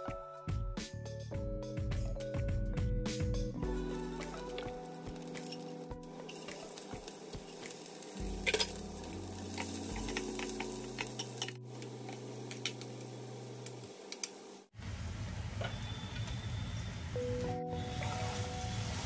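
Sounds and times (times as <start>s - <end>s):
spices and onions sizzling in oil: 3.7s - 14.7s
spoon clattering on pan: 9.5s - 11.6s.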